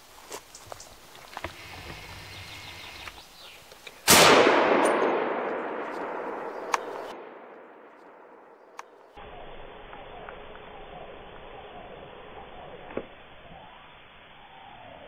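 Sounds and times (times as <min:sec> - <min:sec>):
rifle shot echoing: 0:04.0 - 0:08.8.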